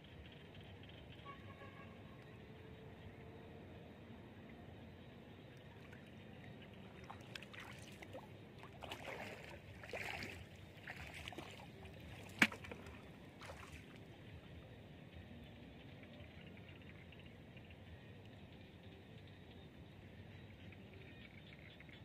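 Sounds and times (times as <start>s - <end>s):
wading through shallow water: 5.5s - 14.6s.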